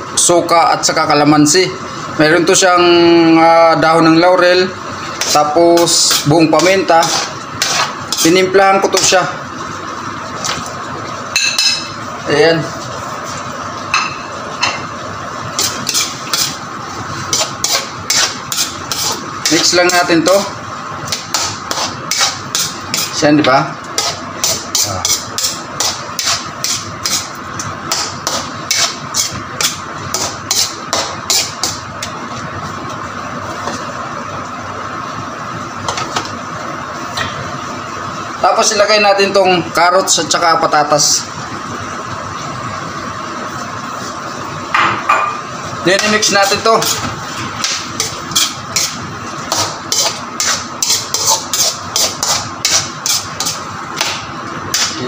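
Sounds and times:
sauce sizzling: 1.4s - 44.8s, 45.4s - 55.0s
utensil scraping against wok: 5.2s - 8.4s, 15.6s - 16.6s, 17.2s - 20.1s, 21.1s - 23.2s, 24.0s - 27.3s, 27.9s - 31.8s, 45.9s - 53.7s.

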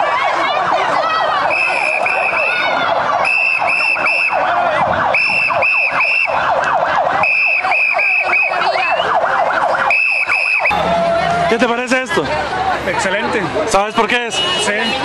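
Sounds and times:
sirens yelping: 0.0s - 12.8s
shrill whistle blasts: 1.5s - 2.6s, 3.2s - 4.4s, 5.1s - 6.3s, 7.2s - 9.1s, 9.9s - 10.8s.

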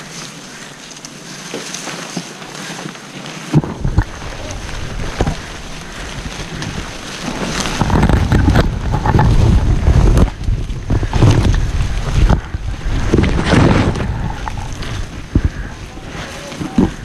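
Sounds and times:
low rumbling noise: 3.5s - 17.0s.

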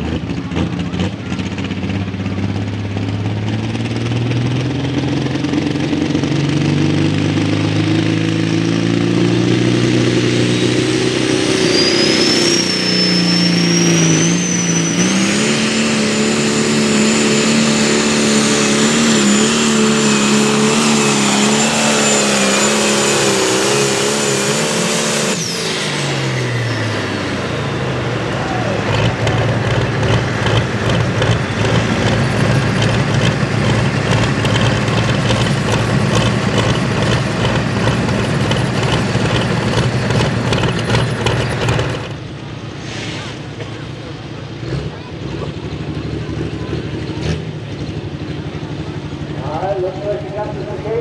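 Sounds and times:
tractor diesel engine under full power: 0.0s - 51.0s
high whistle: 11.3s - 15.4s.

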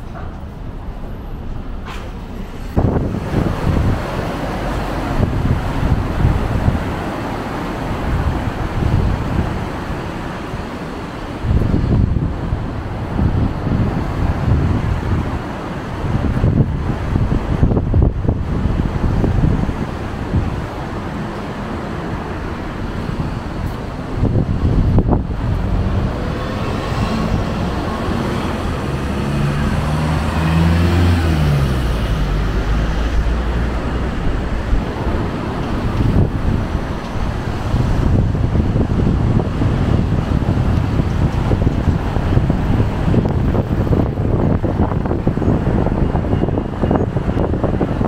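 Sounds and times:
road traffic rumble: 0.0s - 48.0s
wind buffeting microphone: 0.0s - 48.0s
engine rising and falling in pitch: 24.3s - 36.6s.

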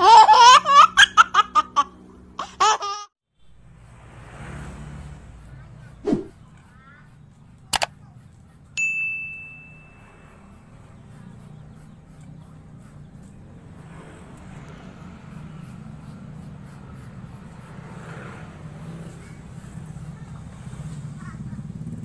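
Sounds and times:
bell ding: 8.8s - 10.6s.

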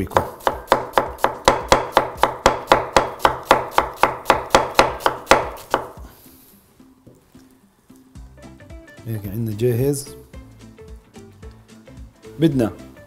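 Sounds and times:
knife chopping on wooden board: 0.0s - 6.1s.

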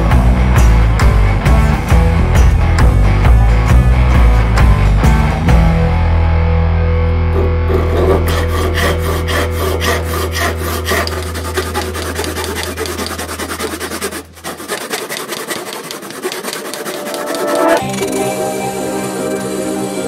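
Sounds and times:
saw rasping through wood: 7.3s - 20.0s.

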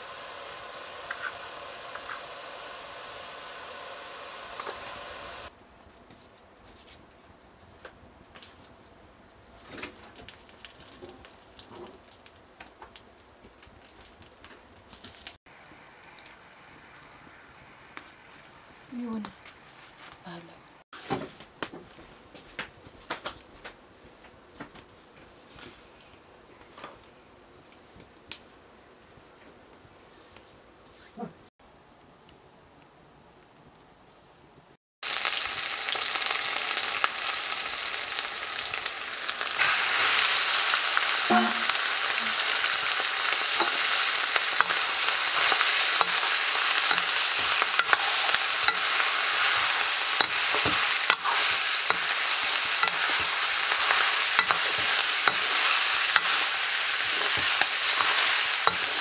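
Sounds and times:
pot hissing: 0.0s - 5.5s, 35.0s - 59.0s
firewood crackling and popping: 0.0s - 6.7s, 7.6s - 20.3s, 26.0s - 28.6s, 31.8s - 33.9s, 35.0s - 59.0s.

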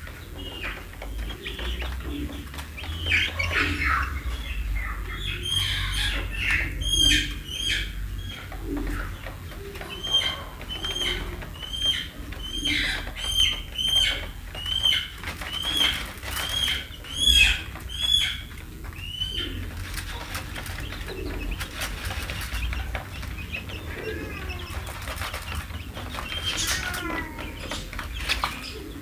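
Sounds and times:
chicks peeping: 0.0s - 29.0s.

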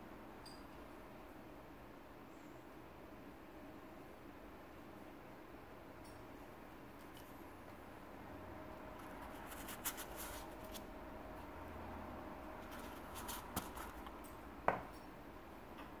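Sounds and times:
cardboard lid rustling and scraping: 9.0s - 10.8s, 12.6s - 14.2s.

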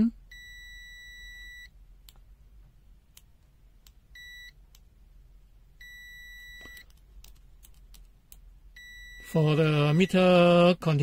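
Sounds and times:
multimeter continuity buzzer beeping: 8.8s - 10.1s.

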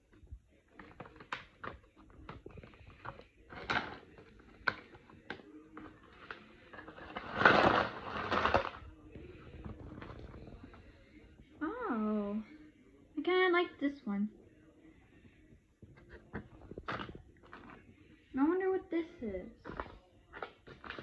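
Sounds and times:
plastic zip bag crinkling: 6.8s - 8.9s.

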